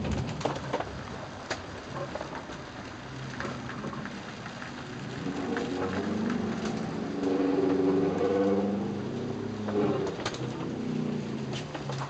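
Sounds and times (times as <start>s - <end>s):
rain on window and deck: 0.0s - 12.0s
low wavering moan: 5.0s - 12.0s.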